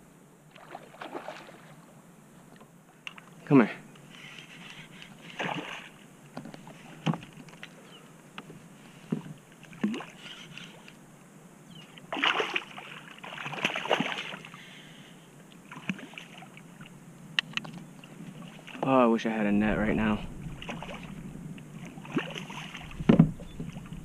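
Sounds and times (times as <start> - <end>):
fish splashing water: 0.5 - 1.8, 5.3 - 6.0, 12.1 - 14.6, 20.4 - 24.0
gear knocking on kayak hull: 23.0 - 23.8.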